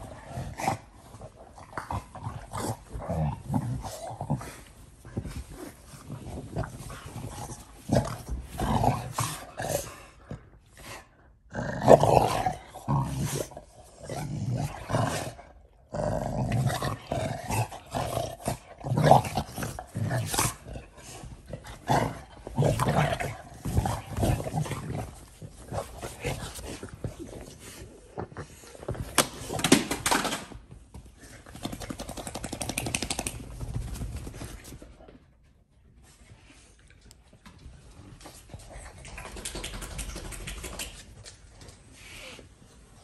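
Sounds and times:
dogs growling: 0.0s - 30.0s.

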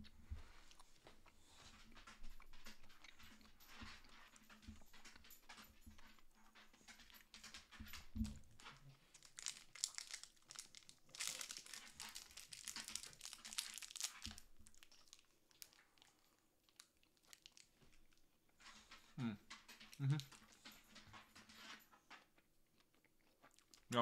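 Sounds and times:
plastic wrapper crinkling: 8.5s - 18.2s.

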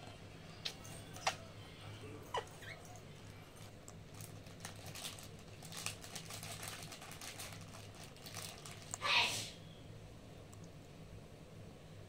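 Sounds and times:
low steady hum: 0.0s - 12.0s
parrot nibbling crunchy snack: 3.2s - 9.0s.

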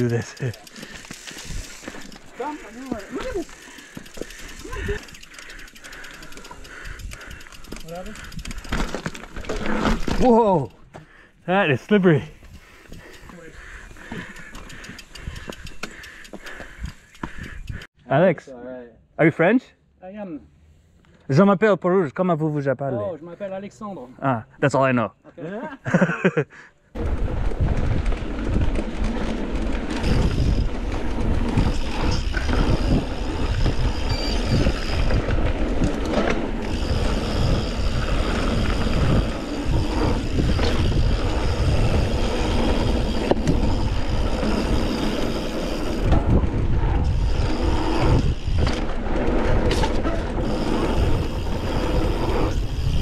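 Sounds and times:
bike rattling and knocking: 0.0s - 10.8s, 27.0s - 53.0s
mountain bike tyres rolling: 0.0s - 17.8s, 27.0s - 53.0s
wind on microphone: 27.0s - 53.0s.

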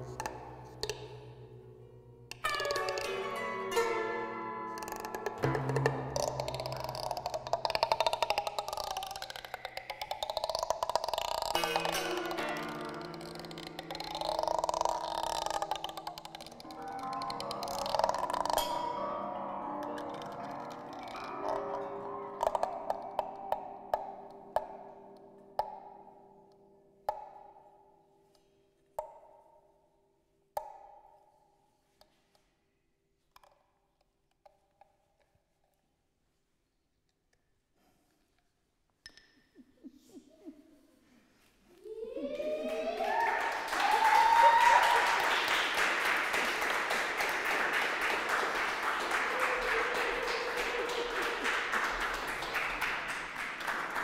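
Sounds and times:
crowd applauding: 11.2s - 23.7s, 41.8s - 54.0s.

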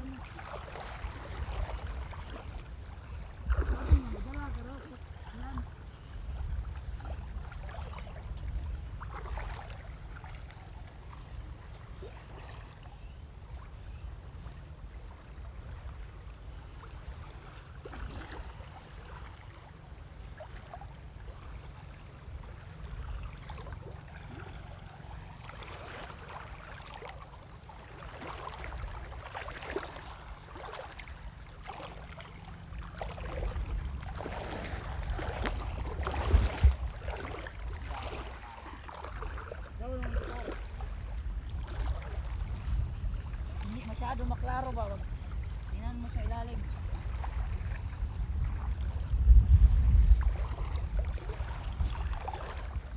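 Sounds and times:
water splashing around legs: 0.0s - 5.8s, 9.0s - 11.4s, 23.0s - 45.0s, 50.2s - 52.9s
wind on microphone: 0.0s - 12.5s, 32.9s - 52.9s.

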